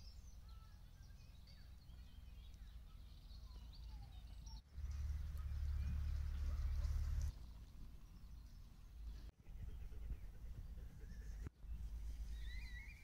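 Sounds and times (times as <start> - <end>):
birds chirping: 0.0 - 13.0
low steady rumble: 4.7 - 12.7.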